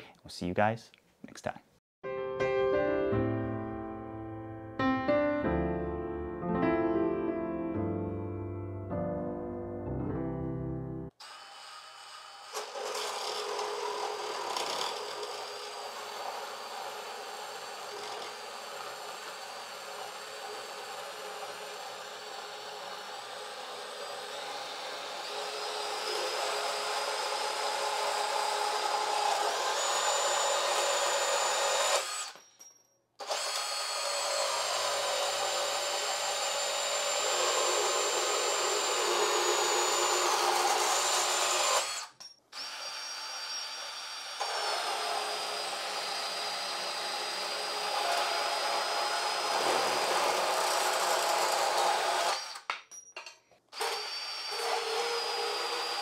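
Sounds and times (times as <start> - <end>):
cordless bandsaw running: 11.2 - 32.4, 33.2 - 52.7, 53.7 - 56.0.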